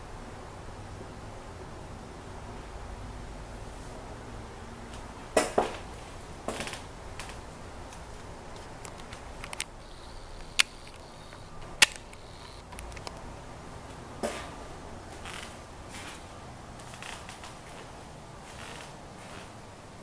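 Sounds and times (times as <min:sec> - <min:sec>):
low hiss: 0:00.0 - 0:20.0
sharp clicks and knocks: 0:08.6 - 0:13.3.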